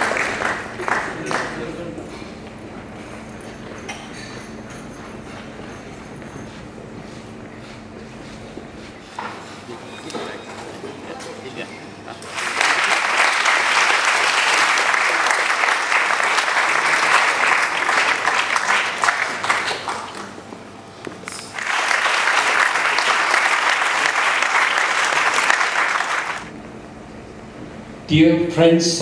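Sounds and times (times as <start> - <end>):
audience applauding: 0.0 - 1.9, 12.2 - 20.5, 21.2 - 26.5.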